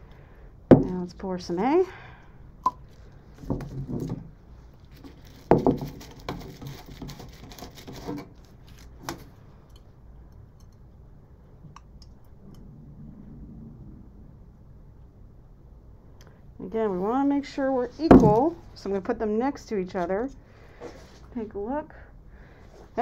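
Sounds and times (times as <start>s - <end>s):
plastic knocks and clatter: 3.4s - 4.3s, 5.0s - 8.3s.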